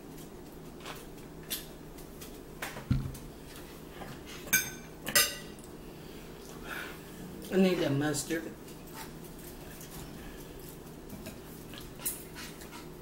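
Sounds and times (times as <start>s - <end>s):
dull knock on table: 2.9s - 3.2s
cutlery clinking on plates: 4.5s - 5.6s.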